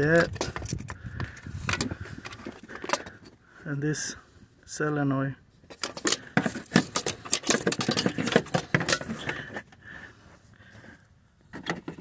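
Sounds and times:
sharp clicks and scraping: 0:00.0 - 0:03.4, 0:05.6 - 0:09.8.

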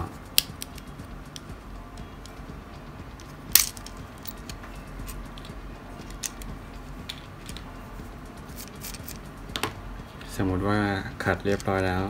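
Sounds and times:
small plastic parts clicking: 0:03.5 - 0:04.5.

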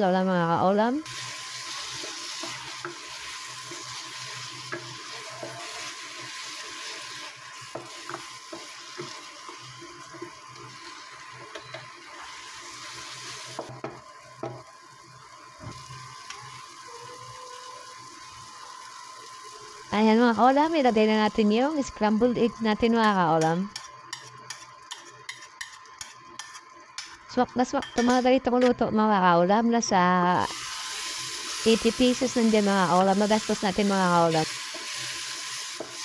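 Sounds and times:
food sizzling: 0:00.0 - 0:27.4, 0:30.2 - 0:36.0
wooden spatula scraping wok: 0:01.6 - 0:13.6.

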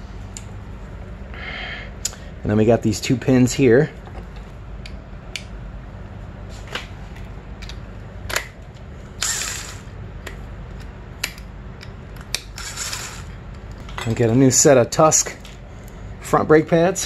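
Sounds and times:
cordless impact driver: 0:09.2 - 0:09.8.

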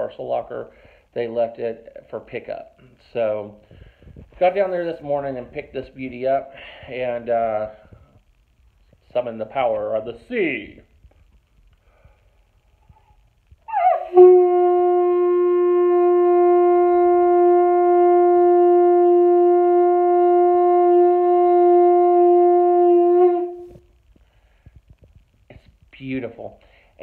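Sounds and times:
seashell horn blast: 0:13.7 - 0:23.9.

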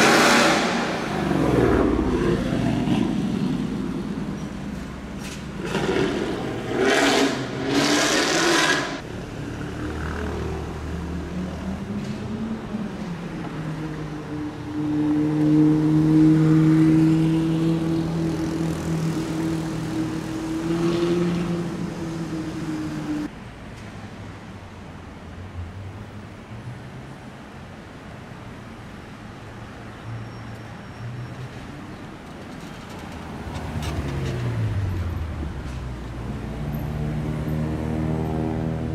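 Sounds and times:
car engine revving: 0:00.0 - 0:03.3
car passing: 0:00.0 - 0:23.3.

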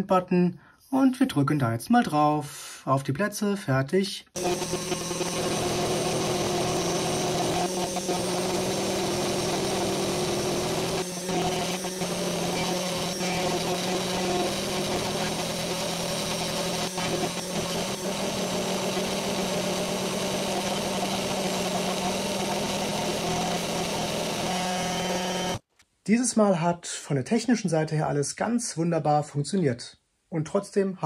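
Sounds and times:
engraver spindle motor humming: 0:04.4 - 0:25.6.

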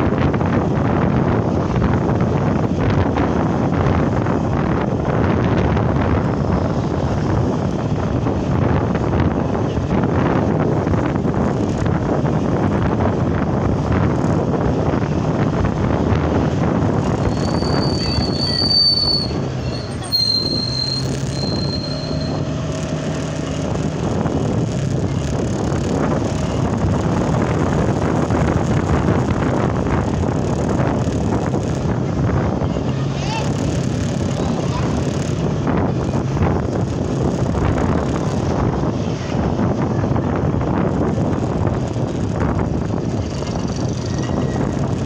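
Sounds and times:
wind rush and road noise: 0:00.0 - 0:45.0
high thin squeal: 0:17.2 - 0:22.6.

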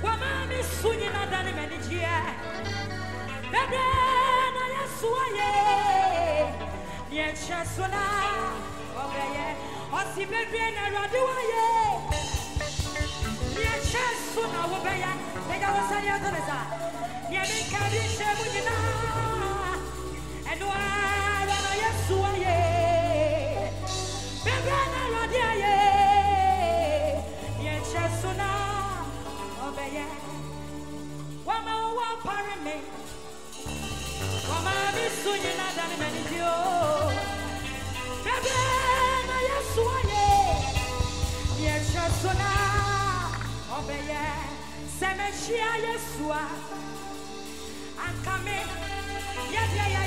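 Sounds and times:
person singing into a microphone: 0:00.0 - 0:33.6, 0:34.2 - 0:50.0
keyboard accompaniment: 0:00.0 - 0:50.0
low bass: 0:11.8 - 0:31.5, 0:32.9 - 0:46.1.

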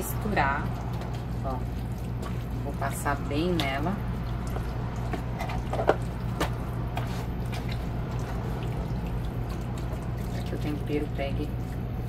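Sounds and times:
steady low hum: 0:00.0 - 0:12.0
hands squishing raw meat: 0:03.4 - 0:10.5.

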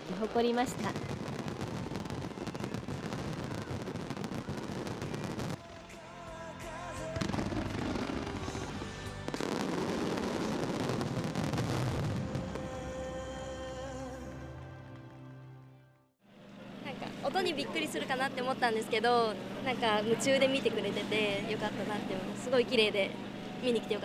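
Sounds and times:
fireworks bursting and crackling: 0:00.0 - 0:06.0, 0:07.0 - 0:14.1
music playing: 0:05.2 - 0:11.3, 0:12.1 - 0:16.1.

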